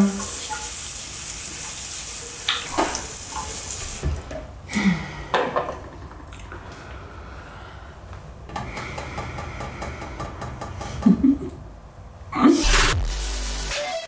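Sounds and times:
water running from sink tap: 0:00.0 - 0:04.2
water splashes: 0:02.4 - 0:04.1.

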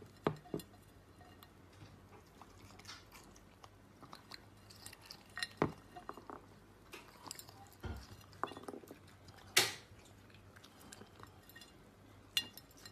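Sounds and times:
raccoon chewing seeds: 0:00.0 - 0:12.9.

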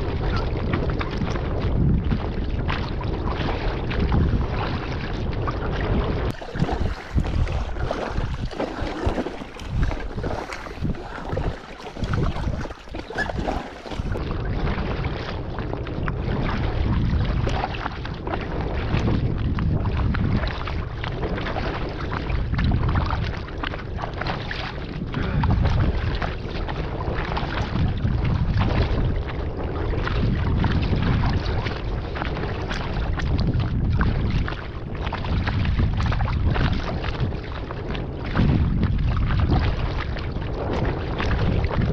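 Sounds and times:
wind rumbling on microphone: 0:00.0 - 0:41.9
paddle splashing in water: 0:02.2 - 0:19.2.

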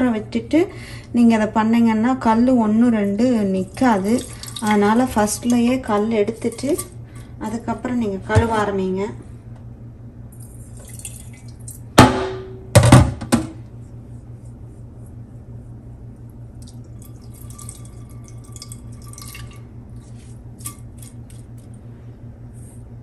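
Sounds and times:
water trickling and dripping: 0:03.7 - 0:05.6, 0:10.7 - 0:11.8, 0:16.6 - 0:19.6
metal bowl and pan clanking: 0:04.1 - 0:07.6.

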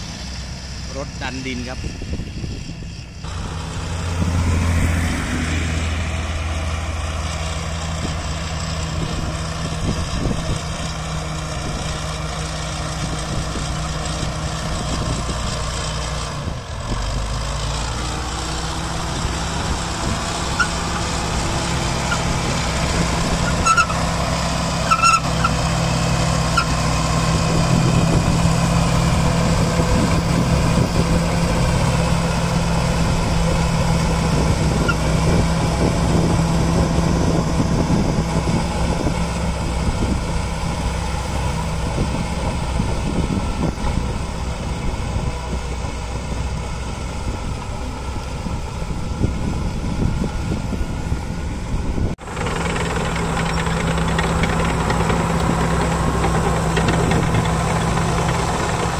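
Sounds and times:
diesel engine running under load: 0:00.0 - 0:58.9
crawler tracks: 0:52.2 - 0:58.9.

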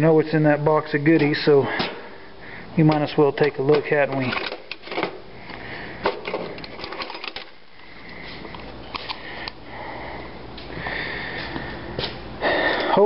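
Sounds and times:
faint high hum: 0:00.0 - 0:13.0
metal tools rattling in drawer: 0:03.4 - 0:05.1, 0:06.0 - 0:07.6.

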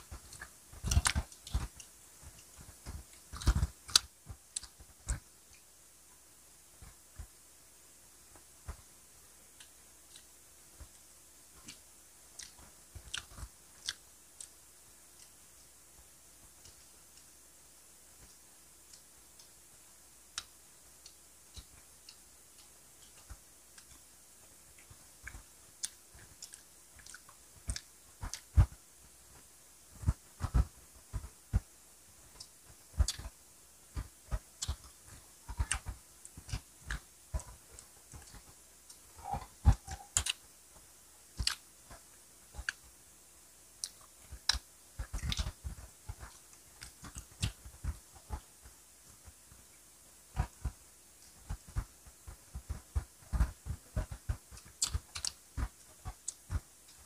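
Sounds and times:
people chewing food: 0:00.0 - 0:07.4, 0:08.2 - 0:57.0
wet mouth clicks and smacks: 0:38.1 - 0:40.4, 0:54.6 - 0:56.4.

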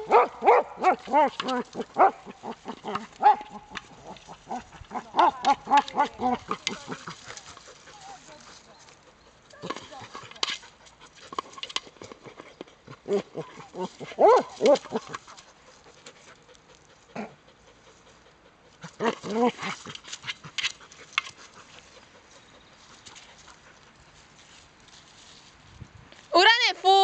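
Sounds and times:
dog yelping: 0:00.0 - 0:06.8, 0:13.8 - 0:15.1.

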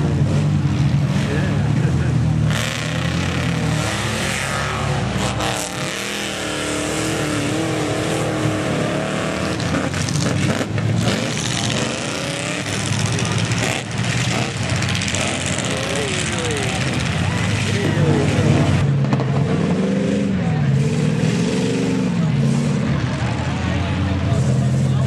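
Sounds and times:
truck engines revving: 0:00.0 - 0:25.0.

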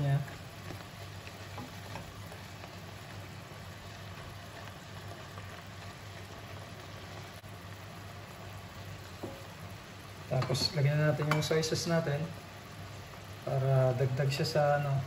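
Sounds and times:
meat sizzling in a wok: 0:00.0 - 0:15.0
wooden spatula stirring: 0:00.3 - 0:02.8.

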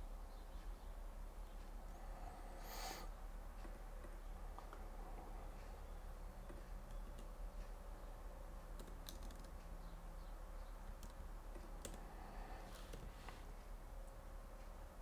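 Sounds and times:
faint steady hum: 0:00.0 - 0:15.0
computer keyboard keystrokes: 0:06.8 - 0:07.4, 0:08.7 - 0:09.6, 0:10.8 - 0:12.1.

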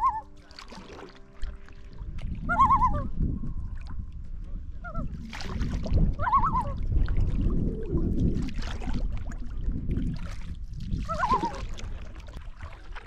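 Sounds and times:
loons tremolo call: 0:00.0 - 0:00.4, 0:02.4 - 0:03.1
paddle strokes splashing: 0:00.0 - 0:13.0
wind rumble on microphone: 0:01.8 - 0:13.0.

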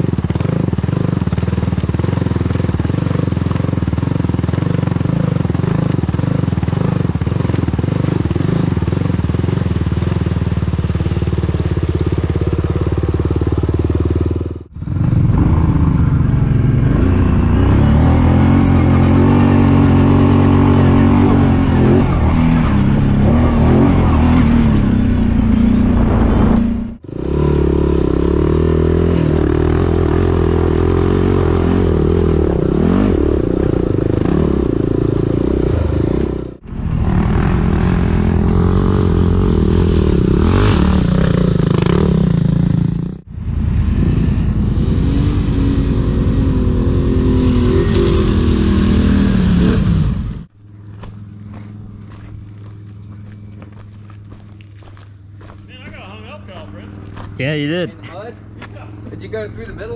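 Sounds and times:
atv engines running: 0:00.0 - 0:59.9.

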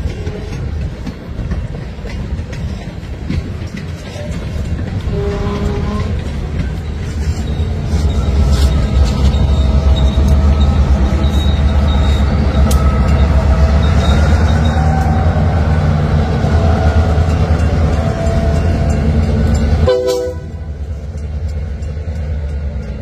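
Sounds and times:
diesel locomotive engines rumbling: 0:00.0 - 0:23.0
freight train rolling: 0:00.0 - 0:23.0.

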